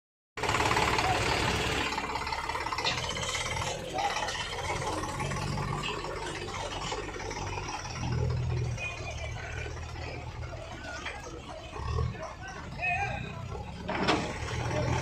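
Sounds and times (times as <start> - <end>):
tractor diesel engine idling: 0.4 - 15.0.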